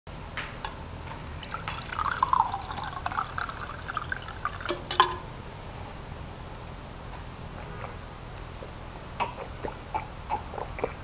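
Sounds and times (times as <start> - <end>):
drink pouring into glass mug: 1.4 - 5.2.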